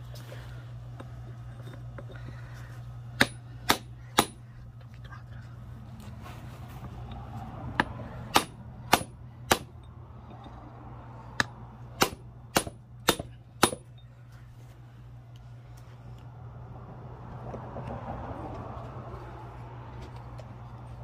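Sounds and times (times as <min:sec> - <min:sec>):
hammer striking metal drift: 0:03.2 - 0:04.5, 0:07.8 - 0:09.9, 0:11.4 - 0:14.0.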